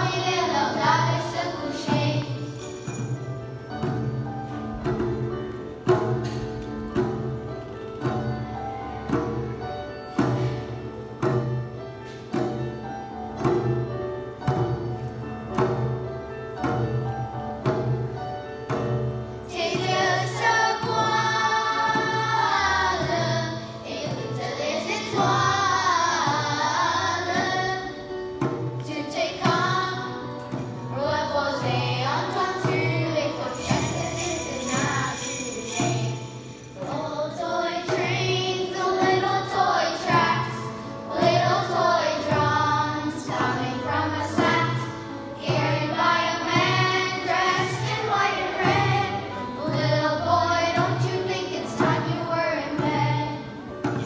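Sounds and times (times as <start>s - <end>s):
children's choir singing: 0.0s - 4.0s, 19.4s - 54.0s
instrumental accompaniment with beat: 0.0s - 54.0s
sleigh bells jingling: 2.0s - 3.6s, 33.1s - 37.5s.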